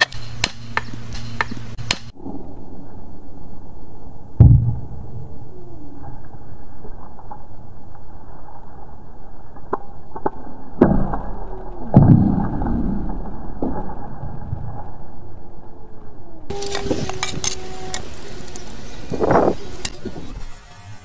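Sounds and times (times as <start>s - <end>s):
machete striking bamboo: 0.0s - 2.1s.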